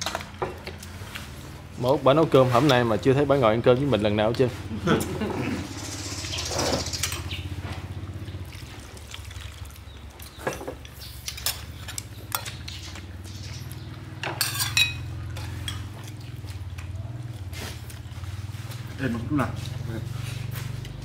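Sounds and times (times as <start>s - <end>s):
ladle clinking against pot and bowl: 14.2s - 15.9s.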